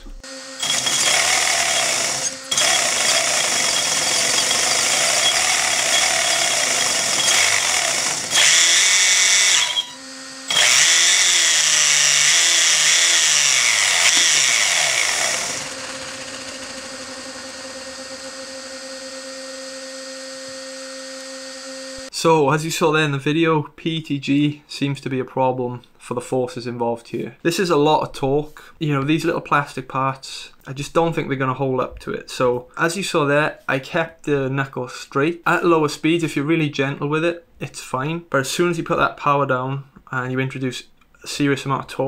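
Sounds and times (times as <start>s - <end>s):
electric motor driving gears: 0.0s - 22.1s.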